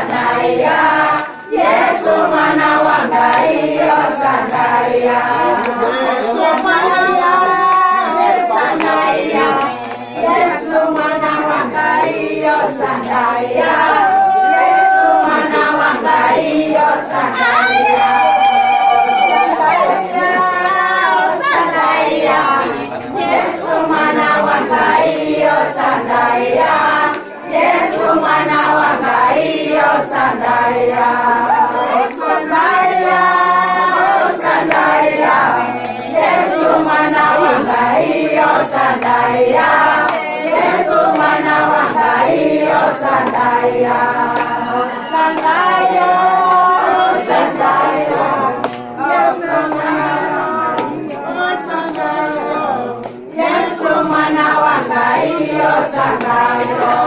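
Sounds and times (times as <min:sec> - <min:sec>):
hand clapping: 0:00.0 - 0:15.0, 0:26.6 - 0:33.4, 0:34.1 - 0:46.8, 0:48.6 - 0:51.2, 0:51.8 - 0:52.2, 0:52.9 - 0:55.4, 0:56.0 - 0:57.0
group singing in chorus: 0:00.0 - 0:57.0.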